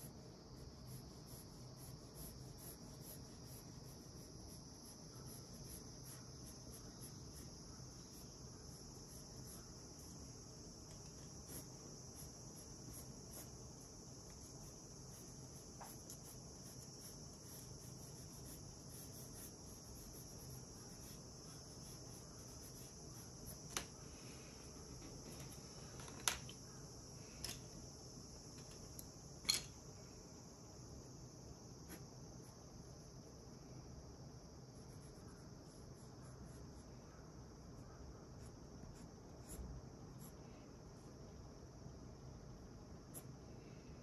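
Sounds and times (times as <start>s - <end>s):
steady high-pitched hiss: 0.0s - 44.0s
pencils clicking on wooden desk: 25.0s - 26.6s.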